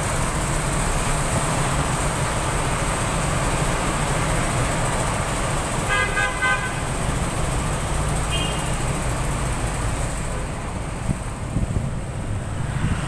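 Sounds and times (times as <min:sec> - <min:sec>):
traffic engine and road rumble: 0:00.0 - 0:13.0
vehicle horn beeps: 0:05.9 - 0:06.8, 0:08.3 - 0:08.8.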